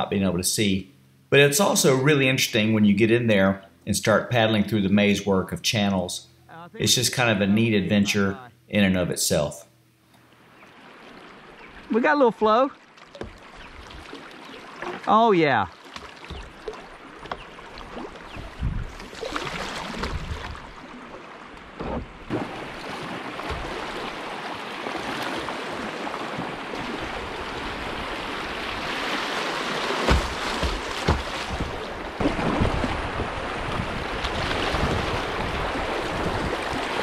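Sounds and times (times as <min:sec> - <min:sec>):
paddle splashes and knocks: 0:12.8 - 0:37.0
river water rushing: 0:22.3 - 0:37.0.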